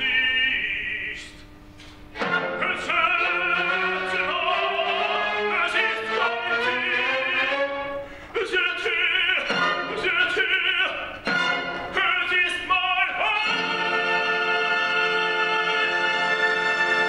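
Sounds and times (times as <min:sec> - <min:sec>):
tenor singing with vibrato: 0:00.0 - 0:01.4, 0:02.2 - 0:17.0
orchestra playing: 0:02.2 - 0:17.0.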